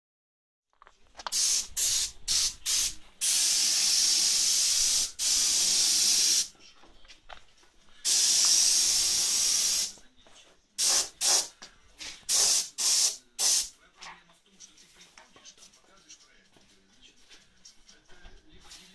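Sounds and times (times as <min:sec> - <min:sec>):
spray gun air hissing: 0:01.3 - 0:06.5, 0:08.0 - 0:10.0, 0:10.8 - 0:11.5, 0:12.3 - 0:13.7.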